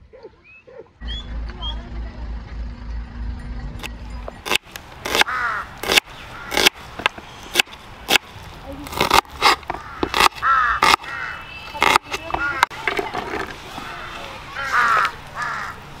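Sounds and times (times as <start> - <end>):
low rumble: 1.0 - 5.0
crows cawing: 5.2 - 6.7, 9.7 - 11.5, 12.3 - 12.8, 13.8 - 15.8.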